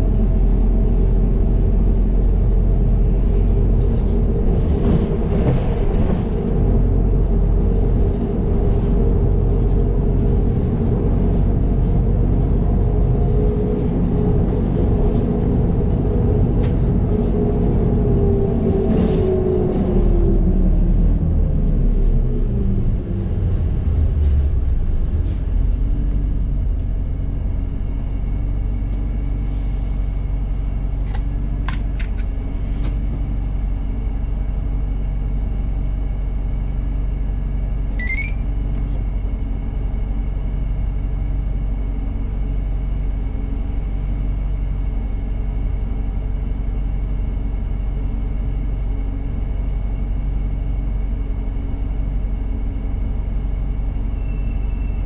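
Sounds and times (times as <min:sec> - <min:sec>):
bus engine idling: 0:00.0 - 0:55.0
bus engine winding down: 0:00.0 - 0:55.0
short rising chirp: 0:38.0 - 0:38.4.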